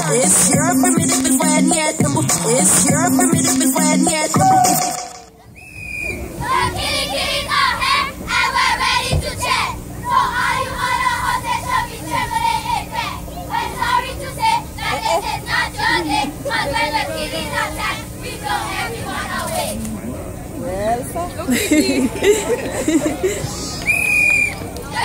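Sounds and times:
cheerleaders chanting a cheer: 6.3 - 19.8, 24.5 - 25.0.

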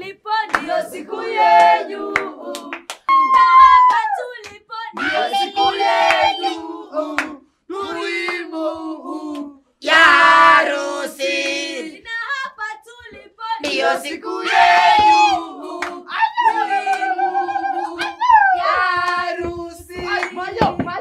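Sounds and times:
group singing and cheering: 0.0 - 21.0.

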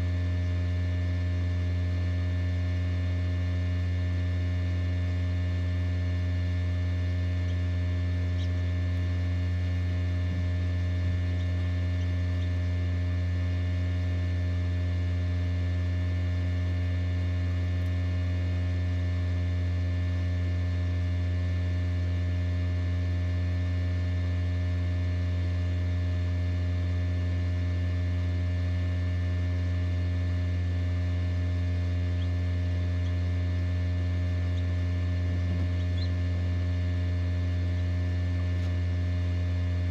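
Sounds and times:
incubator electrical hum: 0.0 - 39.9
quail chicks peeping: 6.3 - 13.0, 31.8 - 38.9.

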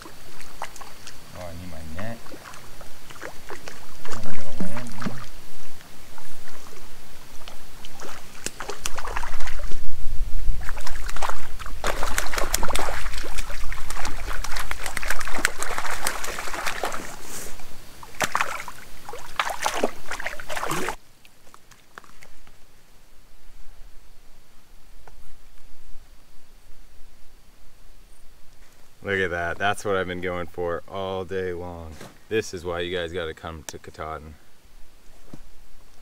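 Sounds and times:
fish splashing in water: 0.0 - 1.3, 2.2 - 5.4, 6.1 - 10.0, 10.6 - 21.0.

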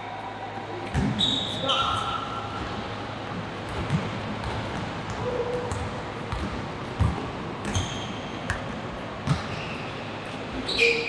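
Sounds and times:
gym hubbub: 0.0 - 11.0
basketball bouncing on court: 0.8 - 1.4, 3.6 - 9.8
short high squeaks: 1.2 - 2.2, 10.6 - 11.0.

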